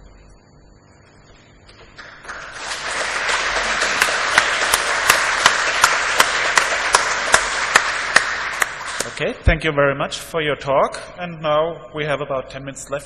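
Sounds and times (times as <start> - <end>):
audience applauding: 1.8 - 9.4
nearby person clapping sharply: 2.0 - 9.2.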